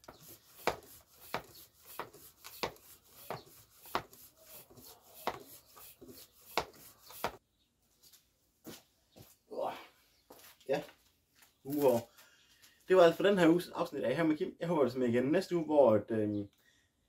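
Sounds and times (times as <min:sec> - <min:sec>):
bicycle pump strokes: 0:00.0 - 0:07.4.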